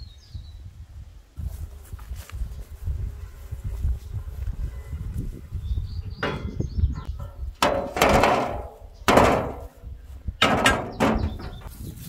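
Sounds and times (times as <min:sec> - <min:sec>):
metal griddles clanking: 0:06.2 - 0:11.8.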